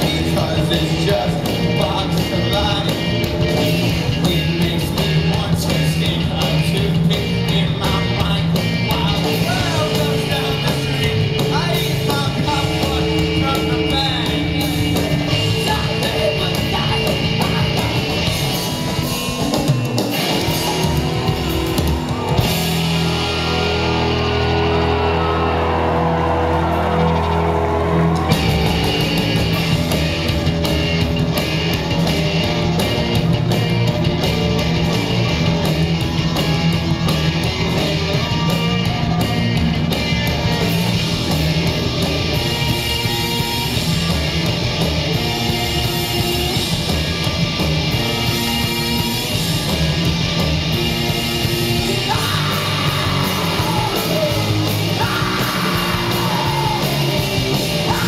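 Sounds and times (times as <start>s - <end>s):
person singing and yelling: 0.0s - 19.2s, 20.1s - 29.6s, 51.0s - 58.0s
live rock band playing: 0.0s - 58.0s.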